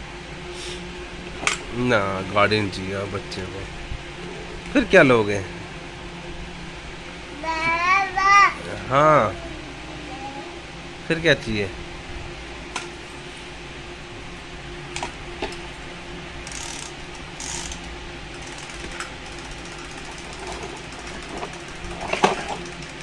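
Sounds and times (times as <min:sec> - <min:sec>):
steady low hum: 0:00.0 - 0:23.0
plastic toys clicking and knocking: 0:16.5 - 0:23.0.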